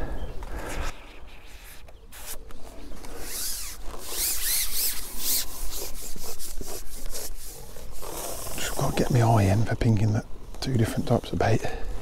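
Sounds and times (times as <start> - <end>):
fishing pole rubbing through hands: 0.6 - 9.3.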